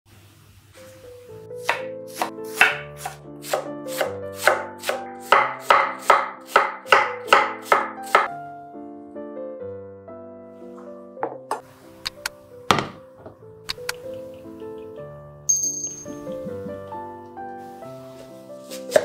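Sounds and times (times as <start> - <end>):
soft piano background music: 0.5 - 19.0
knife chopping on wooden board: 1.6 - 8.3, 18.8 - 19.0.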